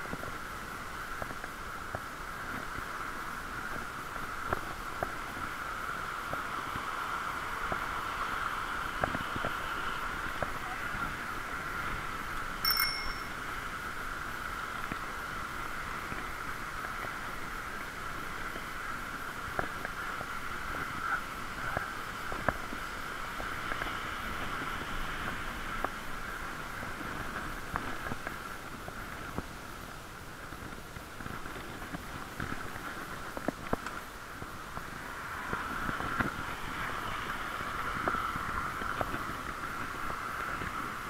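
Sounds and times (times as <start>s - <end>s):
muffled riding noise: 0.0s - 41.0s
bicycle bell ringing: 12.6s - 13.7s.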